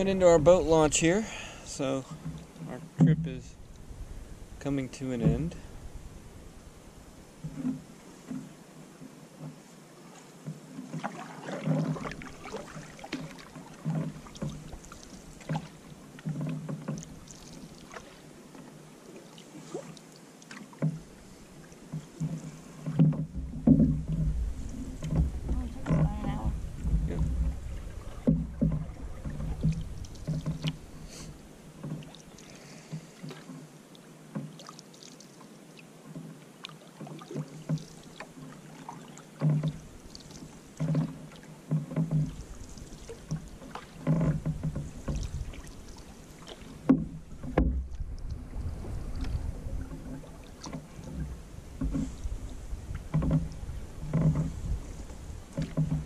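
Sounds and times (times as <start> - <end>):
paddle splashing in water: 0.0 - 56.0
low rumble: 23.4 - 30.2.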